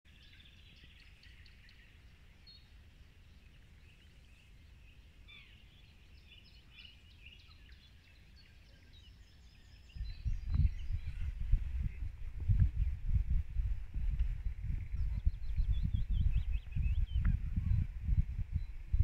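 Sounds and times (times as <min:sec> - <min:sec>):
birds chirping and trilling: 0:00.1 - 0:19.0
low steady rumble: 0:10.0 - 0:19.0.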